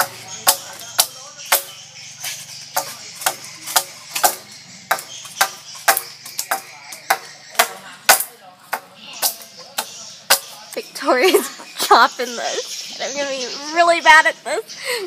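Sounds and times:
blade chopping into wooden pole: 0:02.8 - 0:10.6.

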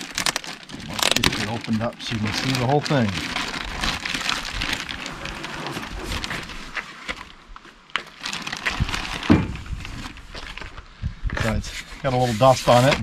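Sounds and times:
plastic bag rustling and crinkling: 0:00.0 - 0:13.0
thump on wooden bed: 0:09.3 - 0:09.6.

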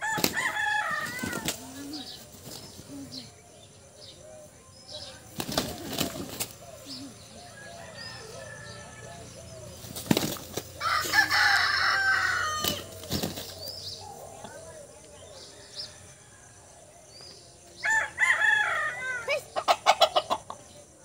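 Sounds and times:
rooster crowing harshly: 0:00.0 - 0:01.5, 0:10.8 - 0:12.9
roosters clucking: 0:00.0 - 0:21.0
wings flapping: 0:00.1 - 0:02.8, 0:05.3 - 0:06.7, 0:09.8 - 0:11.4, 0:12.5 - 0:13.7.

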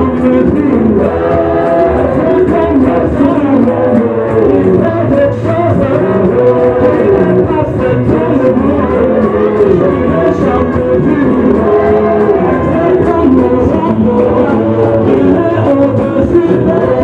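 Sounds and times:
group singing through microphones: 0:00.0 - 0:17.0
instrumental accompaniment: 0:00.0 - 0:17.0.

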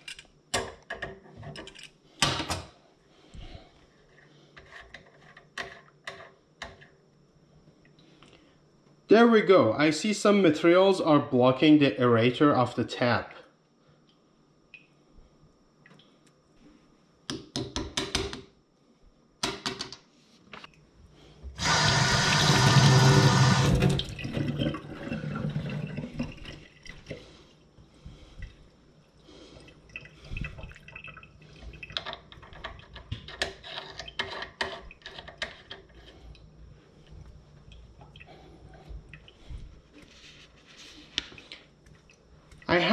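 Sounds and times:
faucet water running into sink: 0:21.6 - 0:27.1.

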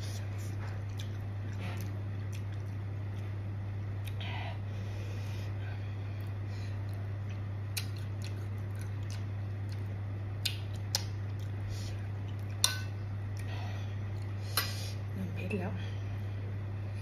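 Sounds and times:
person chewing food: 0:00.0 - 0:03.4, 0:04.0 - 0:04.2, 0:06.1 - 0:14.7
steady low hum: 0:00.0 - 0:17.0.

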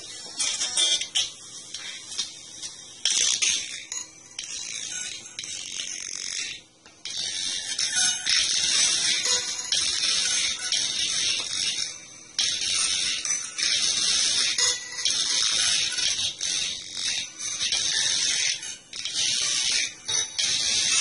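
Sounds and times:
crackling hiss from small speaker: 0:00.0 - 0:21.0.

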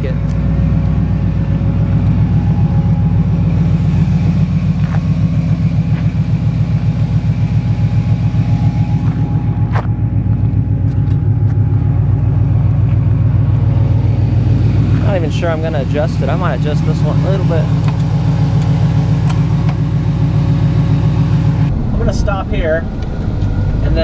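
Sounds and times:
pickup truck engine droning: 0:00.0 - 0:24.0.

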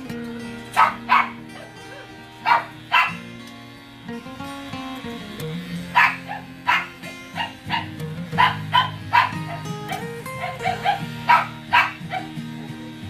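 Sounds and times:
background music: 0:00.0 - 0:13.0
dog barking: 0:00.7 - 0:03.2, 0:05.9 - 0:13.0.

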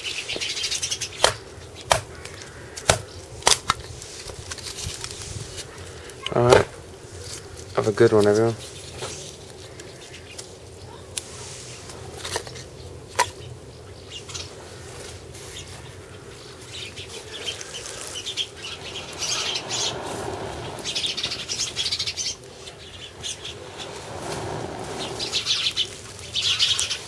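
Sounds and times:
blowing on embers: 0:14.5 - 0:27.0.

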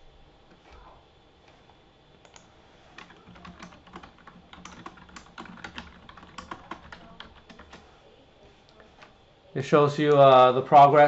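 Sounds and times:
keyboard typing: 0:02.2 - 0:08.0.

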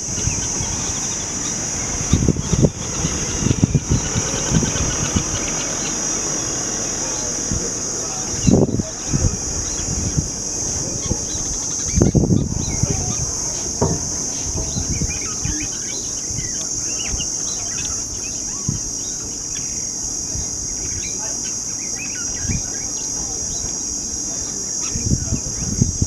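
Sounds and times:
low thumps: 0:00.0 - 0:17.4
high insect drone: 0:00.0 - 0:26.0
small birds chirping: 0:00.0 - 0:26.0.

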